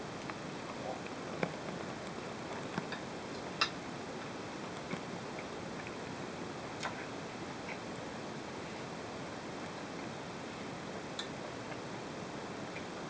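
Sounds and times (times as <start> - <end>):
background hiss: 0.0 - 13.0.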